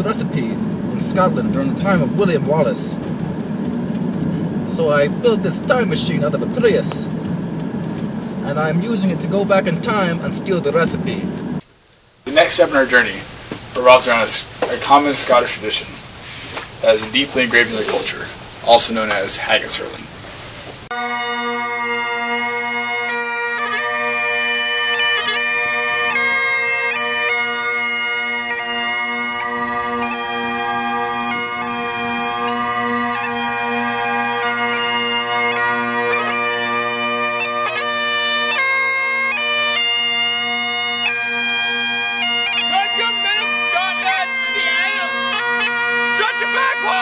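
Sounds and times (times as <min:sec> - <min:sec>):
bagpipes playing: 0:12.3 - 0:20.0, 0:20.9 - 0:47.0.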